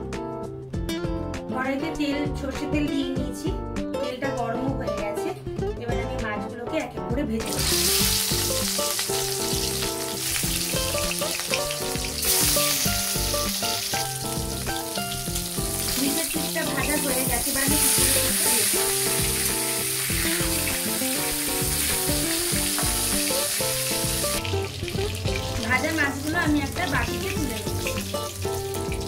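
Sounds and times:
background music melody: 0.0 - 29.0
fish sizzling in oil: 7.5 - 29.0.

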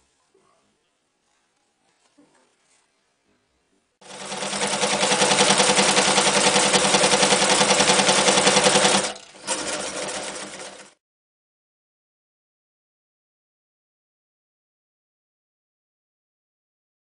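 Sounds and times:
electric sewing machine stitching: 4.0 - 11.0.

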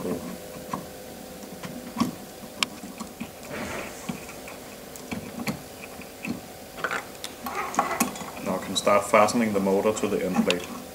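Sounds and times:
brief metal scrape: 3.4 - 5.4.

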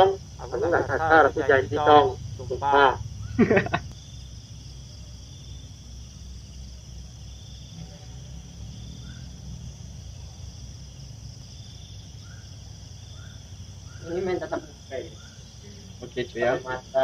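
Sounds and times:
crickets trilling: 0.0 - 17.0
low steady hum: 0.0 - 17.0.

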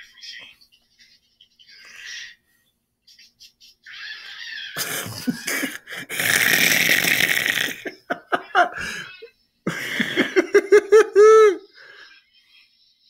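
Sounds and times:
man laughing hard: 4.8 - 6.5, 7.6 - 9.1, 9.7 - 11.7.

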